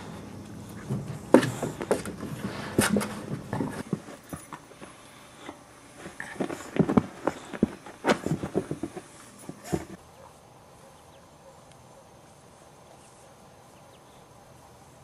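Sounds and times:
puppies scuffling: 0:00.0 - 0:10.0
faint outdoor background: 0:00.0 - 0:15.0.

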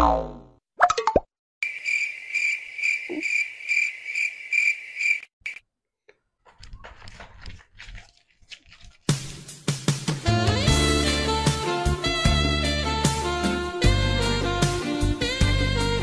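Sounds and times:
cricket chirping: 0:01.6 - 0:05.6.

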